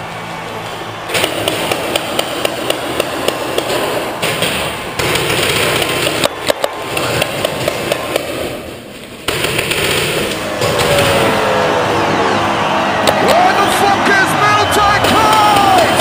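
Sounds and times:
paintball marker shots: 1.1s - 11.4s.

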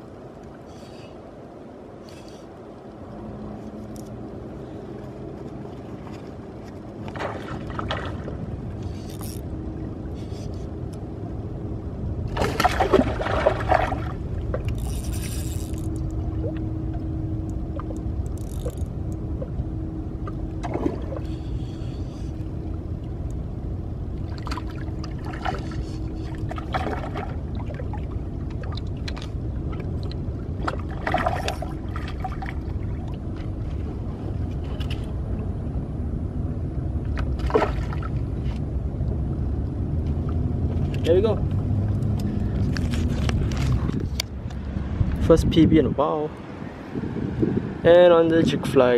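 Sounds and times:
faint steady hum: 0.0s - 48.9s
low rumble of wind and water: 0.0s - 48.9s
scrapes and splashes: 5.3s - 9.4s, 12.3s - 16.6s, 24.3s - 35.1s, 37.1s - 38.7s.

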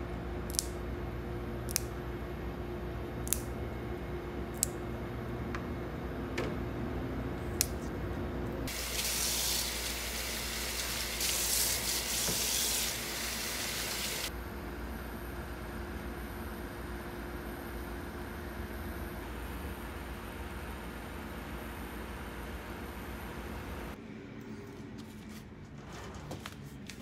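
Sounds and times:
water running: 8.7s - 14.3s.

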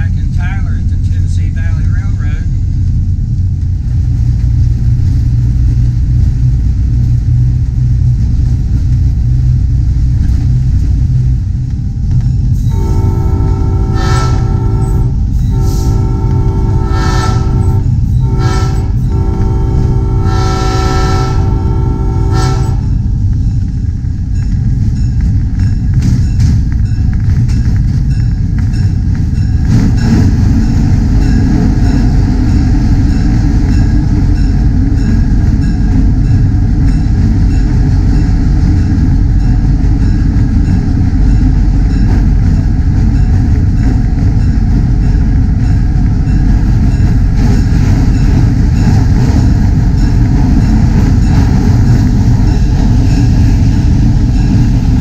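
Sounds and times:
train rumbling: 0.0s - 55.0s
train horn blasts: 12.6s - 23.1s.

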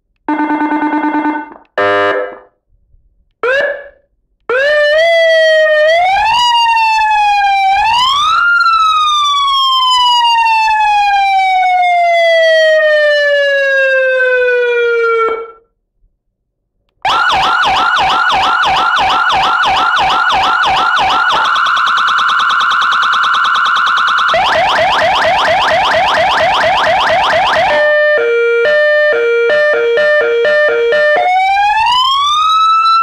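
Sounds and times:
electronic siren wail: 0.3s - 2.5s, 3.4s - 15.6s, 17.0s - 33.0s
quick repeating siren tone: 17.1s - 32.5s
rapid siren warble: 17.1s - 33.0s.

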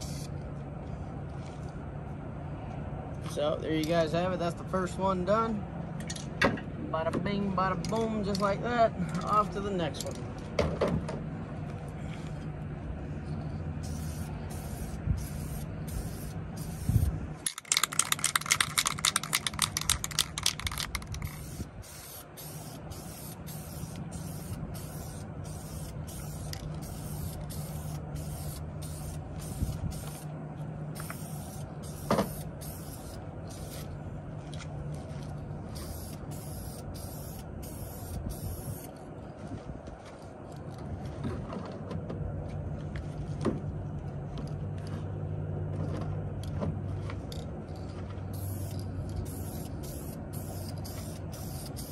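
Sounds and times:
spray paint hissing: 0.0s - 0.3s, 13.8s - 30.3s, 31.0s - 33.9s, 35.8s - 38.9s, 48.3s - 51.9s
steady low hum: 0.0s - 51.9s
spray can ball rattling: 17.5s - 30.2s, 31.0s - 33.8s, 48.3s - 51.9s.

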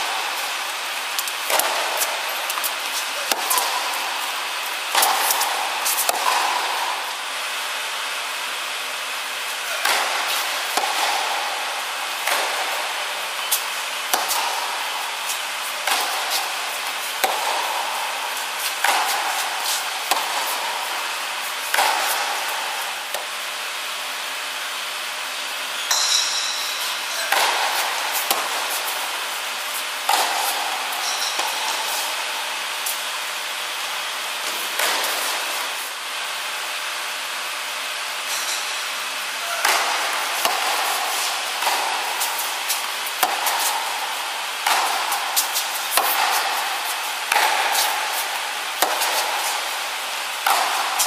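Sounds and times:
tennis ball pock: 1.2s - 7.6s, 13.4s - 17.9s, 25.9s - 29.2s, 30.0s - 33.0s, 39.6s - 49.8s, 50.4s - 51.0s.

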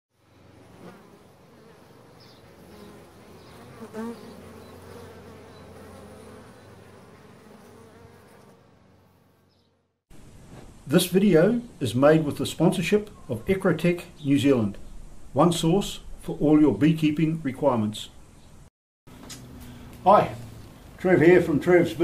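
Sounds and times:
bees buzzing: 0.2s - 9.9s.

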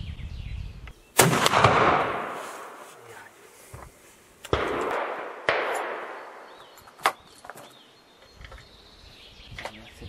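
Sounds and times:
birds chirping: 0.0s - 1.3s, 2.9s - 10.0s
loud gunshots: 1.2s - 2.4s, 4.5s - 6.5s.

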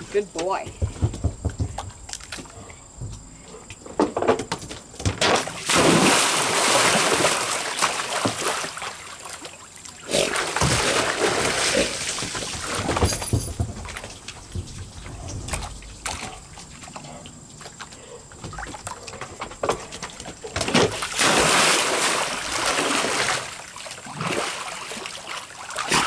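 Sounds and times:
dog splashing in pool: 5.2s - 26.0s.

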